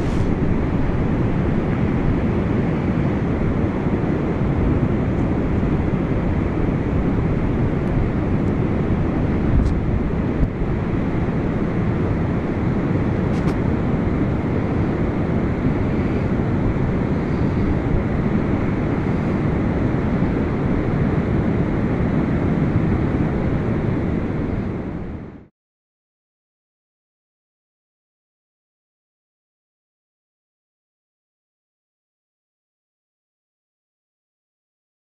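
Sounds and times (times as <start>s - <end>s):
wind buffeting microphone: 0.0s - 25.3s.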